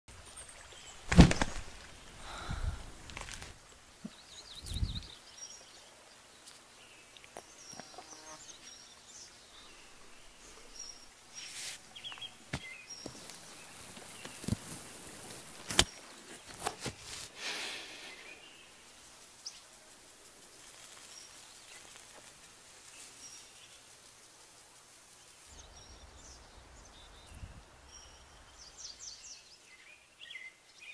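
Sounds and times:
birds chirping: 0:00.1 - 0:16.9, 0:17.8 - 0:24.3
rustles and clicks: 0:01.0 - 0:02.0, 0:02.8 - 0:03.6, 0:10.5 - 0:17.3.

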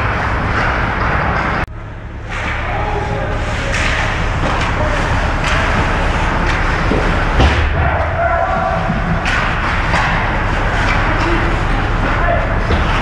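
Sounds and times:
arena background noise: 0:00.0 - 0:13.0
hockey sticks and puck knocking: 0:03.6 - 0:13.0
faint voices: 0:10.3 - 0:13.0.

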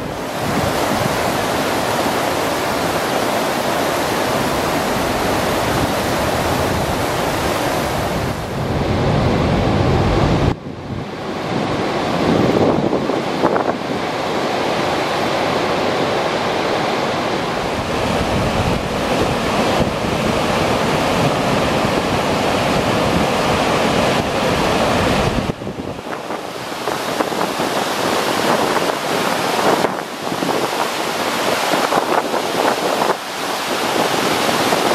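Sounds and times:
water roaring down spillway: 0:00.0 - 0:34.9.

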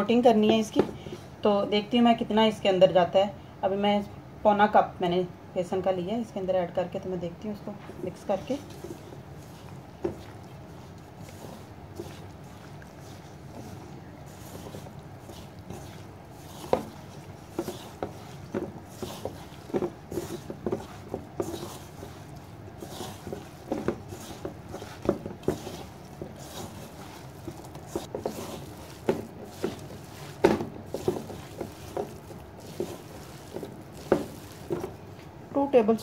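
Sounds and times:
hands squelching raw meat: 0:08.0 - 0:35.2.

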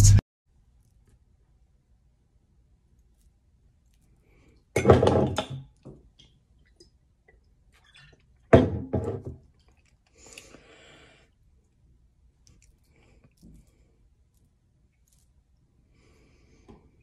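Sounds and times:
glass bottle knocking on table: 0:08.5 - 0:09.4.

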